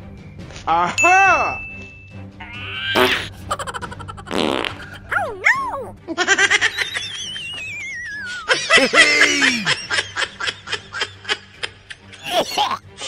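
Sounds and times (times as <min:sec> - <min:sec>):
canned snickering laugh: 0:02.9 - 0:05.1, 0:06.2 - 0:12.8.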